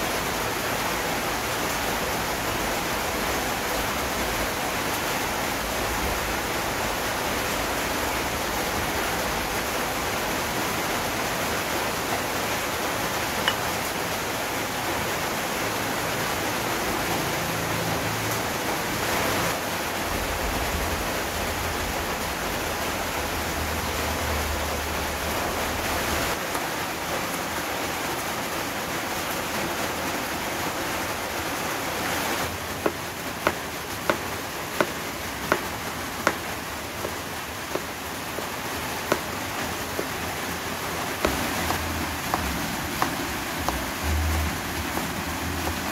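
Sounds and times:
knife chopping on plastic board: 32.8 - 40.2, 41.2 - 43.9.

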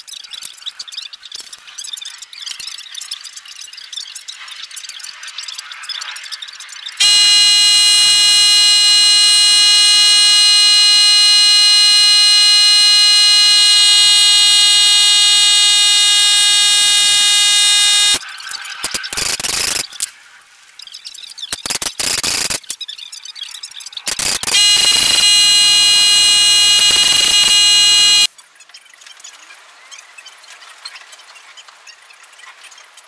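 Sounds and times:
steady buzzer tone: 7.0 - 18.2, 24.1 - 28.3.

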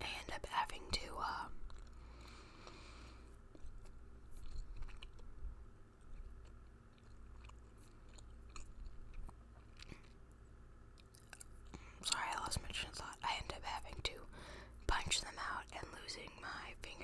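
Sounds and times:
gum chewing mouth clicks: 1.6 - 12.5.

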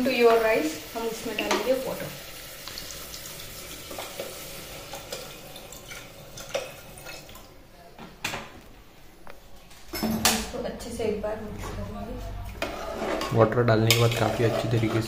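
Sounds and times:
water pouring and splashing: 0.0 - 7.6.

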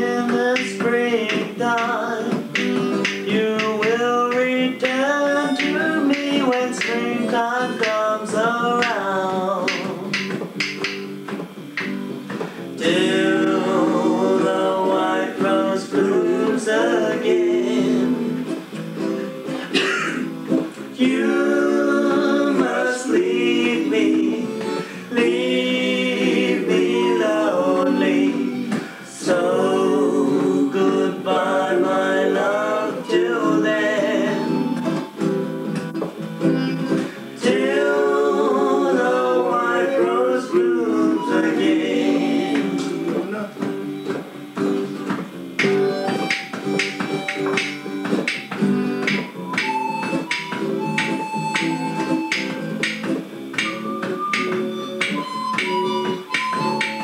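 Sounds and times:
people singing: 0.0 - 11.0, 11.8 - 35.8, 36.8 - 44.2, 45.6 - 57.0
strummed acoustic guitar: 0.0 - 57.0
harmonica playing: 21.1 - 57.0.

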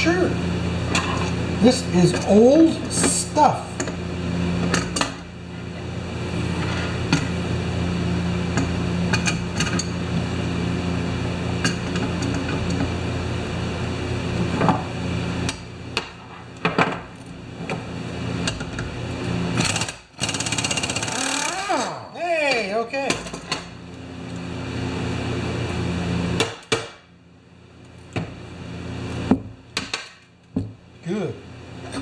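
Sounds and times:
steady mechanical hum: 0.0 - 32.0
impact wrench rattling: 19.6 - 21.6.

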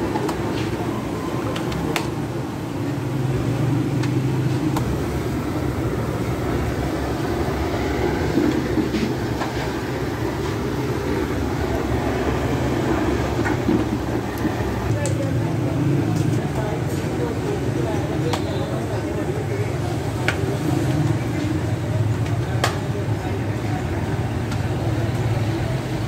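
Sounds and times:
fire rumbling in oven: 4.3 - 16.4.

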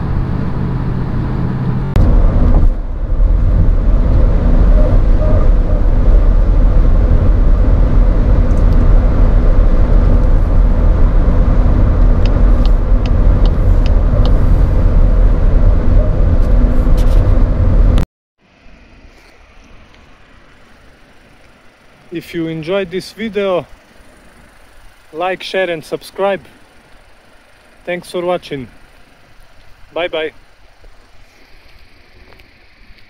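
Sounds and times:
car engine and road rumble: 0.0 - 33.0
faint hum: 0.0 - 33.0.

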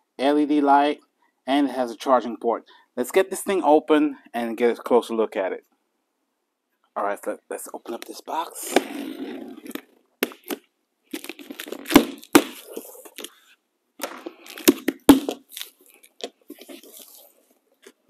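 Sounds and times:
cardboard flaps tearing: 11.2 - 13.3
rustling cardboard: 11.2 - 13.6, 14.3 - 17.6.

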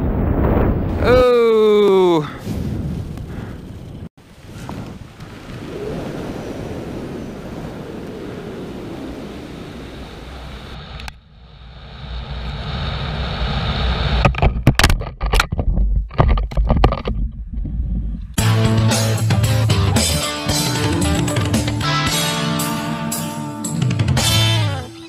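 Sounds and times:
wind rushing over microphone: 0.0 - 14.3.

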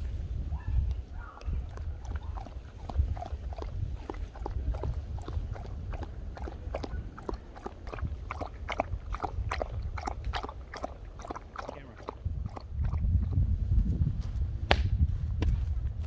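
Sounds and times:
dog lapping water: 0.9 - 13.7.

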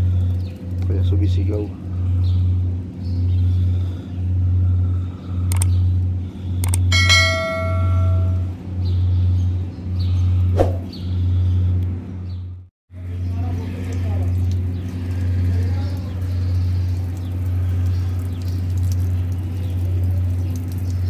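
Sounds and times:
low pulsing hum: 1.8 - 13.3
bell-like ding: 6.9 - 8.5.

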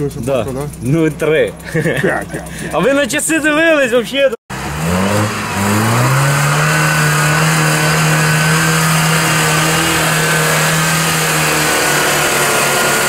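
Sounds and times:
engine at high revs: 4.5 - 13.0.

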